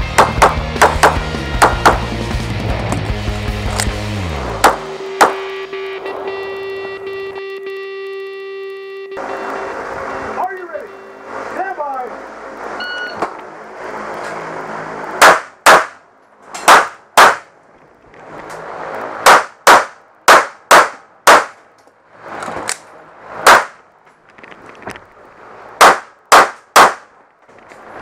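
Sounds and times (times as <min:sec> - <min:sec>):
pistol shots: 0:15.2 - 0:16.0, 0:16.6 - 0:17.5, 0:19.2 - 0:21.6, 0:23.4 - 0:23.8, 0:25.8 - 0:27.1.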